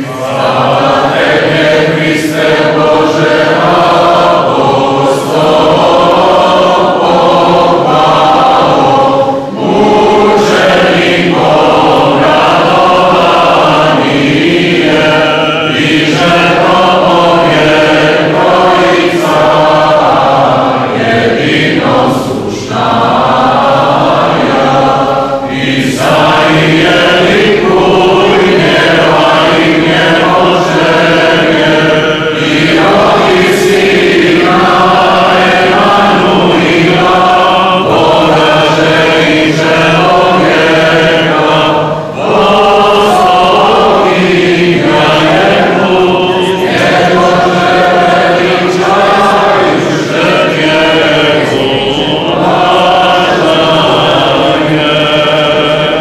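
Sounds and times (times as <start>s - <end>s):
voices singing church chant: 0.0s - 56.0s.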